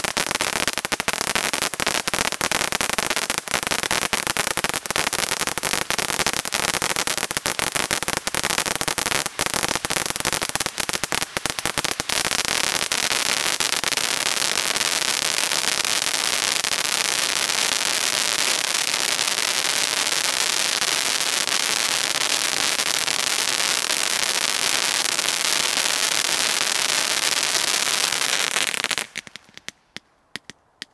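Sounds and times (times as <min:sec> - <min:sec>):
firework fountain hissing and crackling: 0:00.0 - 0:30.5.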